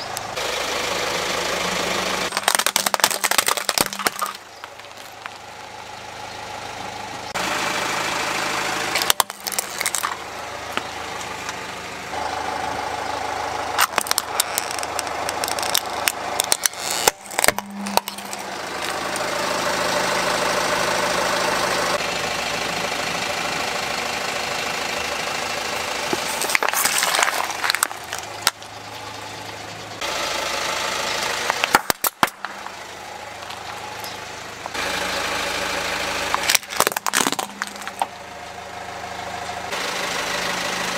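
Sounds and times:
car engine running: 0.0s - 40.9s
plastic toys cracking and crunching: 2.3s - 5.4s, 9.0s - 10.2s, 13.8s - 19.3s, 26.0s - 28.6s, 31.5s - 32.8s, 36.3s - 38.1s.

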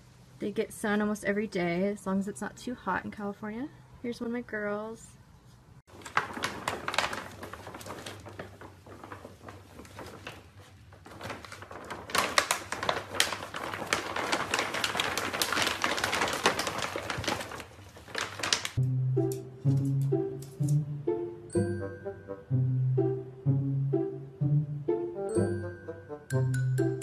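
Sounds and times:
foil bag crinkling: 5.9s - 18.8s.

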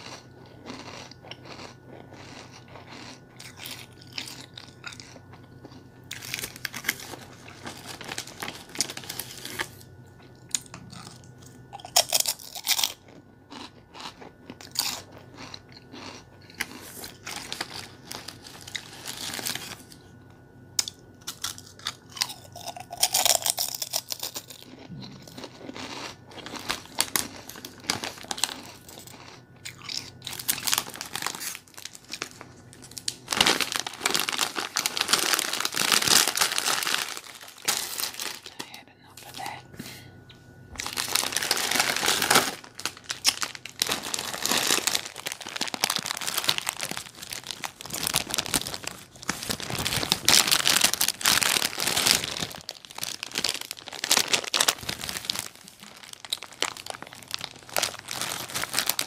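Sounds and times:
crackly rustling: 40.8s - 59.0s.

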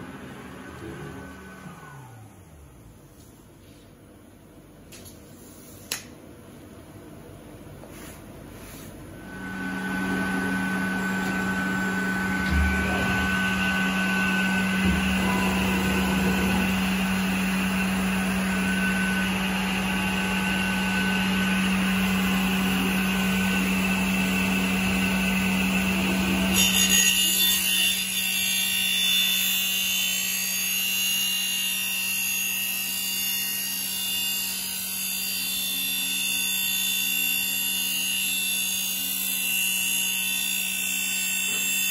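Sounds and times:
circular saw cutting wood: 9.2s - 41.9s.

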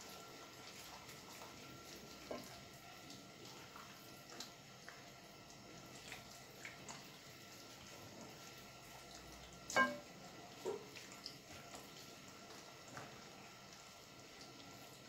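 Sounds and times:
knock on glass bowl: 9.8s - 10.0s.

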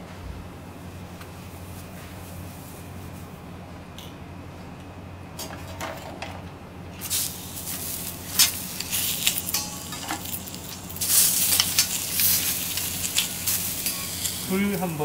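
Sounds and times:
steady low hum: 0.0s - 15.0s
shellfish sizzling on a griddle: 7.0s - 15.0s
metal spatula clicks and scrapes: 8.3s - 14.4s.

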